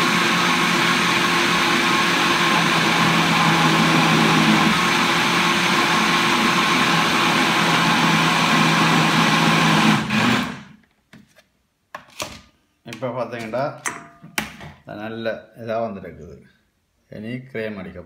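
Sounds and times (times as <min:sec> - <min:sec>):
blender running at high speed: 0:00.0 - 0:10.7.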